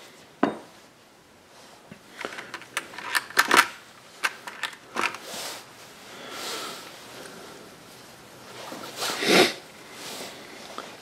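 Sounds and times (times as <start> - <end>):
metal tools tapping on wooden bench: 0.4 - 0.7.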